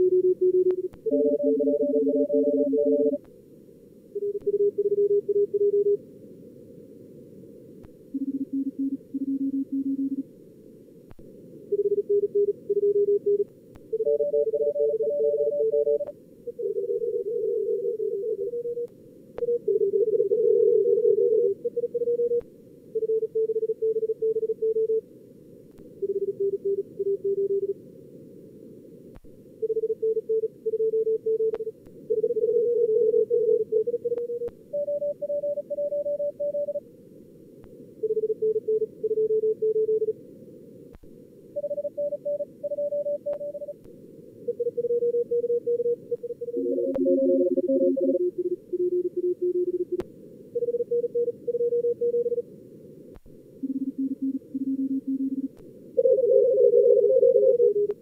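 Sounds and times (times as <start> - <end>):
morse code tones: 0.0 - 3.2, 14.0 - 17.0, 33.4 - 36.8, 41.6 - 43.8, 44.5 - 50.0, 53.6 - 57.9.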